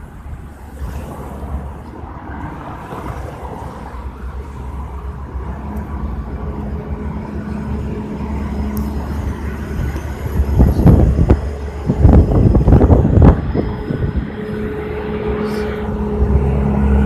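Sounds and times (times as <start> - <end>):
car engine drone approaching: 0.0 - 17.0
traffic on a wet road: 0.0 - 17.0
wind rumble on microphone: 5.9 - 17.0.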